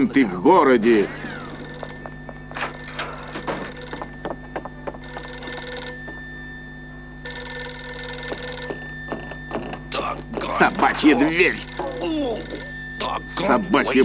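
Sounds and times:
telephone bell ringing: 0.0s - 14.0s.

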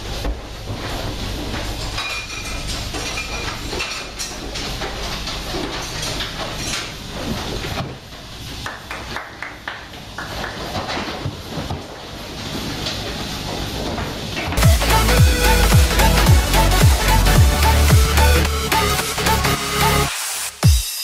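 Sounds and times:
low machine hum: 12.0s - 20.1s.

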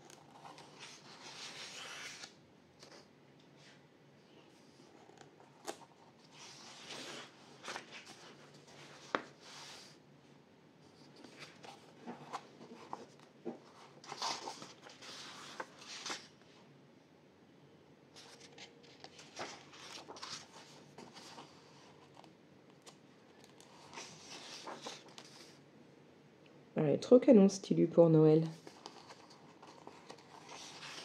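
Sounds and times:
pages turning and rustling: 0.0s - 3.8s, 4.6s - 10.0s, 10.9s - 16.4s, 18.2s - 25.6s, 28.5s - 31.0s.

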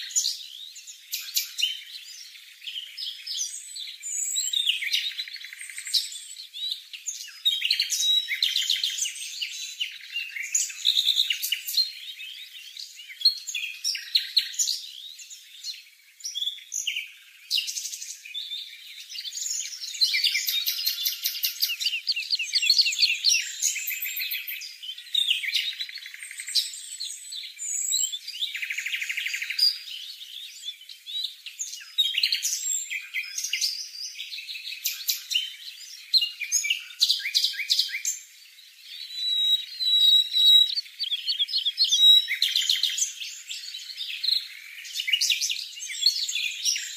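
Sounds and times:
fledgling bird begging chirps: 39.0s - 43.0s.

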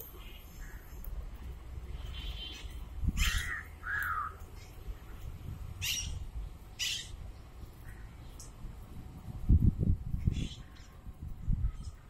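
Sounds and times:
parakeets screeching: 2.0s - 4.3s, 5.8s - 6.2s, 6.8s - 7.2s.

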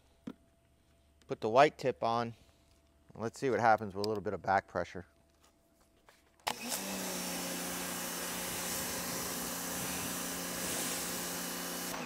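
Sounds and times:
pressure washer motor humming: 6.5s - 12.0s
water spraying hiss: 7.4s - 12.0s.

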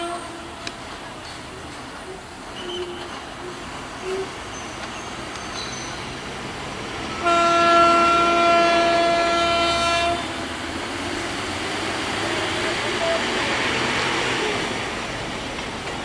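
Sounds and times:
diesel locomotive horn blast: 0.0s - 0.7s, 2.0s - 4.4s, 7.1s - 10.5s, 12.5s - 13.4s
distant train approaching: 0.0s - 16.0s.

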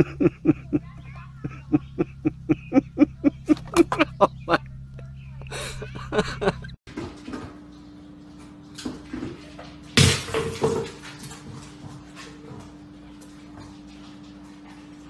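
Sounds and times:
steady low hum: 0.0s - 6.8s
kibble clattering in plastic bowl: 8.8s - 12.6s.

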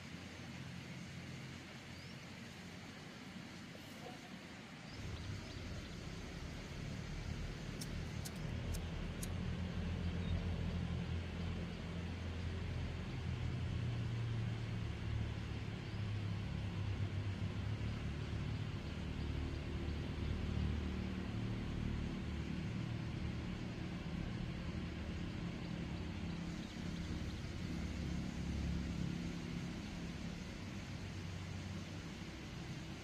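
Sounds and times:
faint hiss: 0.0s - 15.8s
low engine rumble: 4.0s - 33.0s.

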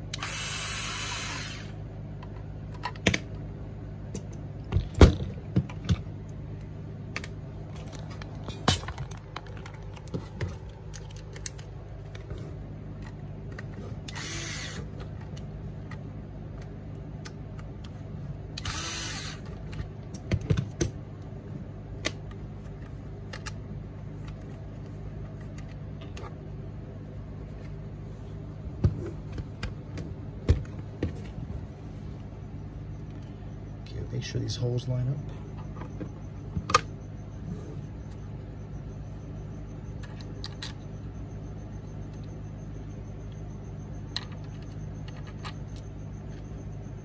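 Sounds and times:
cordless drill whirring: 0.1s - 1.8s, 14.1s - 14.9s, 18.6s - 19.4s.

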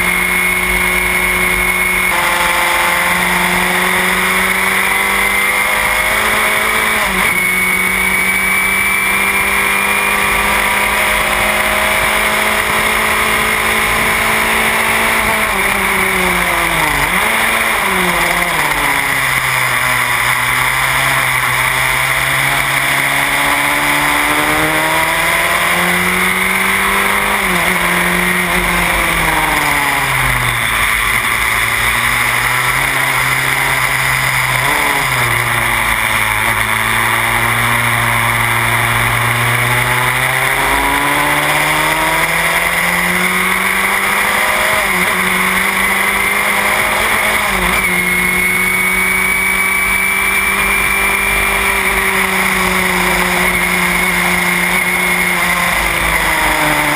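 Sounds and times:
race car engine at speed: 0.0s - 56.9s.

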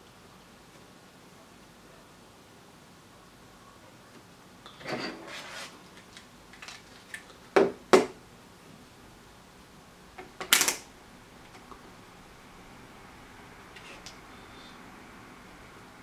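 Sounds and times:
rustle on workbench: 5.0s - 5.8s.

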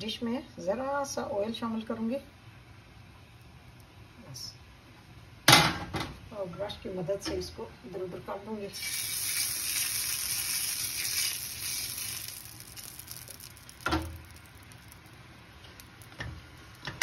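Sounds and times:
oil sizzling on hot platter: 8.6s - 17.0s.

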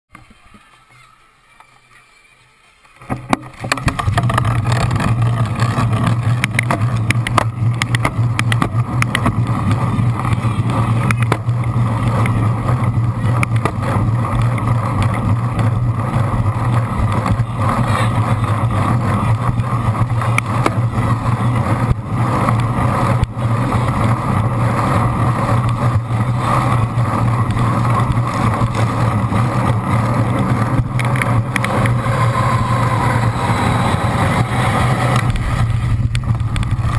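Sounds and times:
bike tyre and drivetrain noise: 0.1s - 36.9s
wind rushing: 20.9s - 36.9s.

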